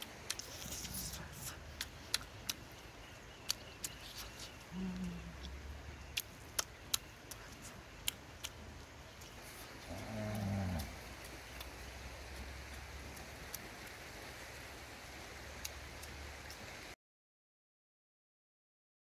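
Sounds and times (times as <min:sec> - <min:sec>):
woman chewing with mouth smacks: 0:00.2 - 0:09.8
woman humming mmm: 0:04.7 - 0:05.6.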